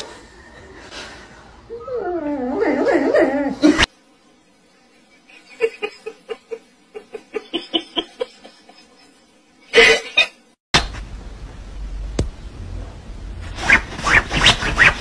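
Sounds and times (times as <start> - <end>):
person giggling: 5.3 - 10.4.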